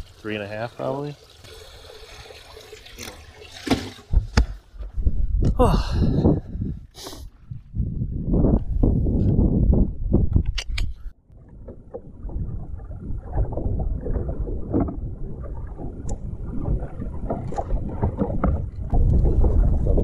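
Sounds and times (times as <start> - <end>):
wind buffeting microphone: 4.1 - 20.0
waves slapping boat hull: 11.5 - 20.0.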